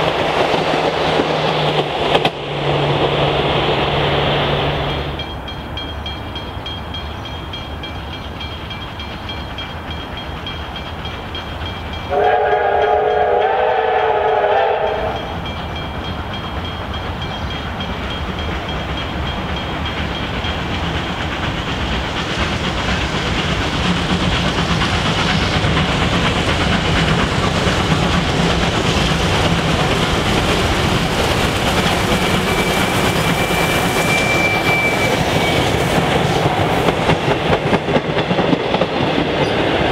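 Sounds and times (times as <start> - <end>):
steam locomotives running: 0.0 - 39.9
steam whistle chord: 12.1 - 15.4.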